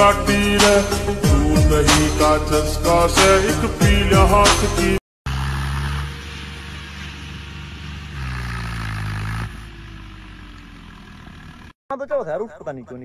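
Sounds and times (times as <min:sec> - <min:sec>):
tractor diesel engine revving: 0:04.2 - 0:11.8.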